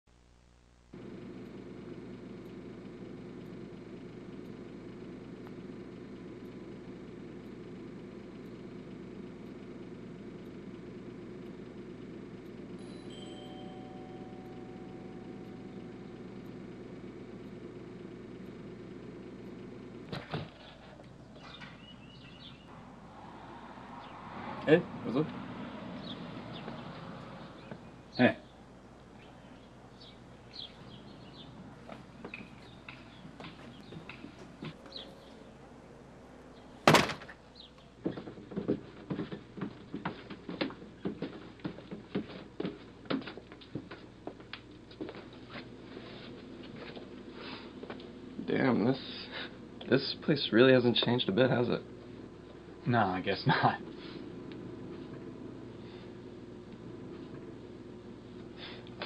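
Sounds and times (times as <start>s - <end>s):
low mechanical hum: 0.1s - 59.0s
footsteps: 31.8s - 35.2s, 38.0s - 48.1s
door banging shut: 36.8s - 37.4s.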